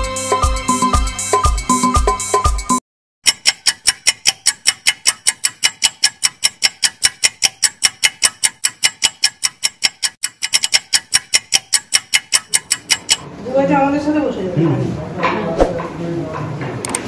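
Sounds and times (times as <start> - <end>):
clock-like timer ticks: 3.2 - 13.2.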